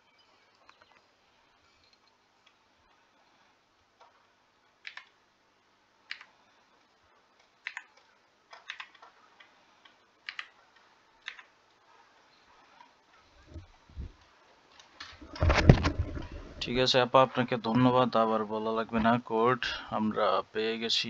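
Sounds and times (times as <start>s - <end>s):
computer keys clicking: 4.8s - 5.2s, 6.0s - 6.4s, 7.4s - 11.5s.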